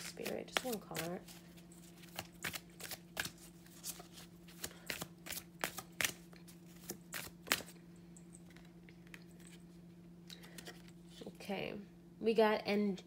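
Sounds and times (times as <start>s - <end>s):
cards being shuffled: 0.0s - 7.7s
steady low hum: 0.0s - 13.0s.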